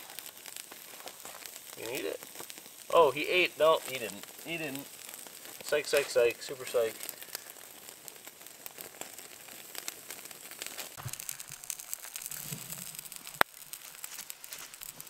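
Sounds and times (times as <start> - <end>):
campfire crackling: 0.0 - 15.0.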